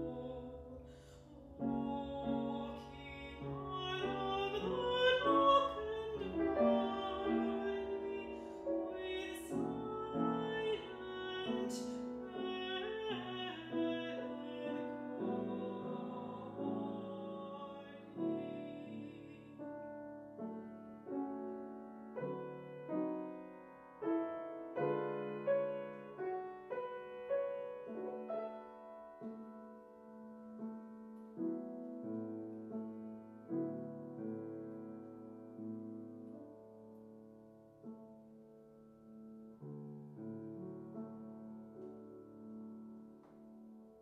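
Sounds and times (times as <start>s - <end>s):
woman singing: 0.0s - 20.1s
grand piano: 0.0s - 44.0s.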